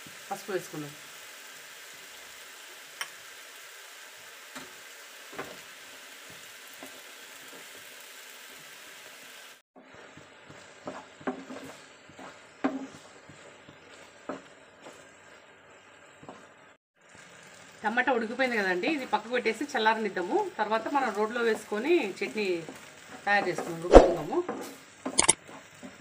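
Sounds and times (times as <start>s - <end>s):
tomatoes sizzling in oil: 0.0s - 26.0s
wooden spatula knocking on pan: 10.4s - 14.6s.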